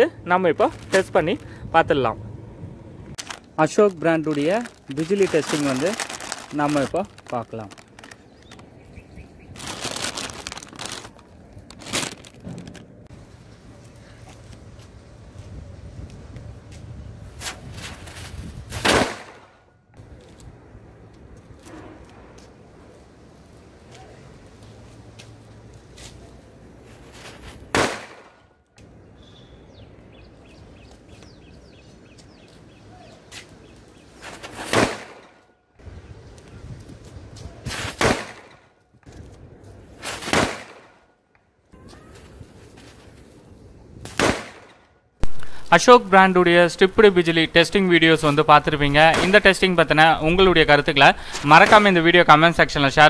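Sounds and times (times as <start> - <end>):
foil packet crinkling: 0.6 - 1.5, 3.2 - 8.7, 9.4 - 12.9
birds chirping faintly: 5.1 - 10.0, 28.8 - 34.4
firecracker bangs: 27.7 - 28.3, 44.1 - 45.4.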